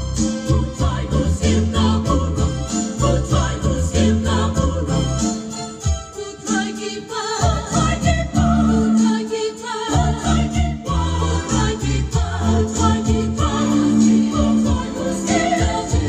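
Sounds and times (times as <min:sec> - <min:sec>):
choir singing a hymn: 0:00.3 - 0:16.0.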